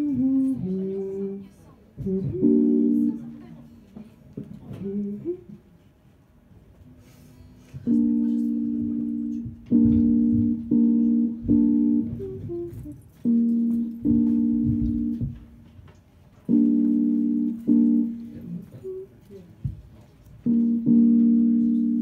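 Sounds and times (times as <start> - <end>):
electric keyboard chords: 0.0 - 1.4, 2.0 - 3.9, 7.7 - 19.2, 20.4 - 22.0.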